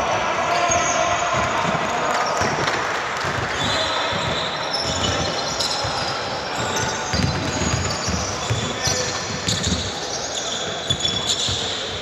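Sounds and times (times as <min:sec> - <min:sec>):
basketball bouncing on court: 0:03.2 - 0:10.1
sneakers squeaking on floor: 0:03.3 - 0:12.0.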